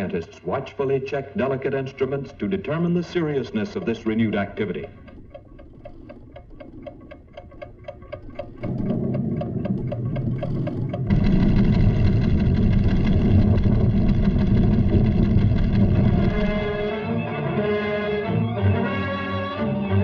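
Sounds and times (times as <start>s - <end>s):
seismograph ticking: 0.0s - 18.8s
low rumble: 4.9s - 17.6s
loud dense rumbling: 8.6s - 17.7s.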